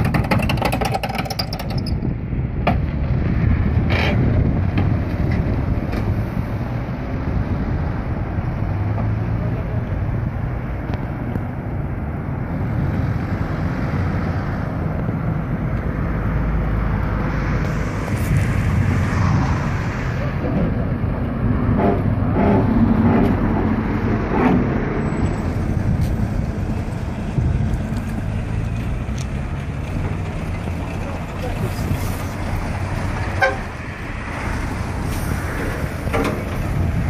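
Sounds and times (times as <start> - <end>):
wind on microphone: 1.4 - 9.2, 9.8 - 30.0, 31.4 - 37.0
voices talking: 30.5 - 32.3.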